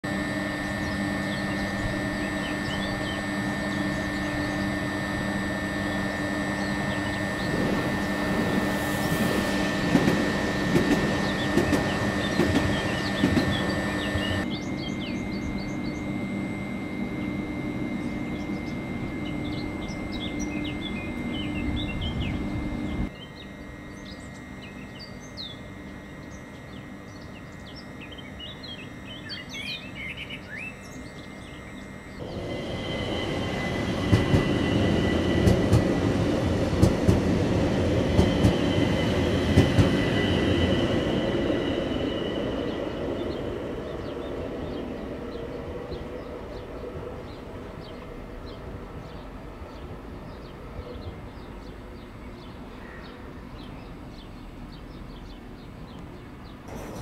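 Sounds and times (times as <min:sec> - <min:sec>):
electric train humming: 0:00.0 - 0:57.0
small birds chirping: 0:10.8 - 0:16.2, 0:18.0 - 0:33.7.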